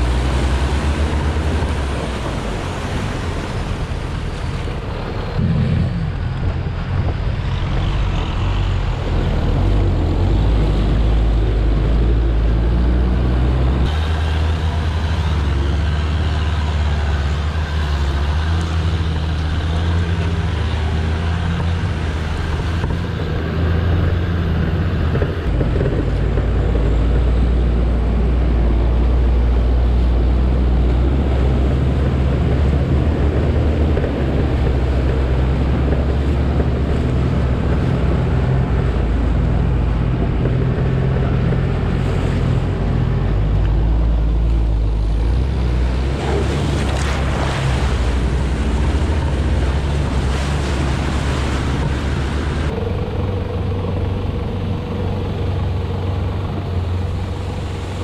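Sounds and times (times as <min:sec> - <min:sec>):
water splashing under tyres: 0:00.0 - 0:07.4, 0:24.9 - 0:58.0
off-road vehicle engine droning: 0:00.0 - 0:58.0.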